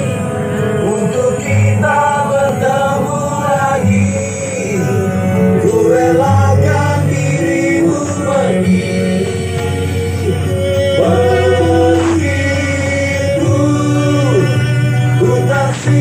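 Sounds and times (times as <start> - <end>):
music with male vocals: 0.0 - 16.0
deep bass notes: 4.9 - 16.0.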